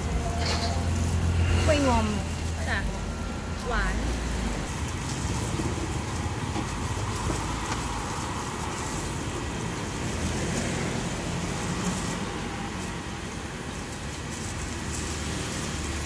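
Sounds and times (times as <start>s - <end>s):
road traffic rumble and hiss: 0.0s - 16.0s.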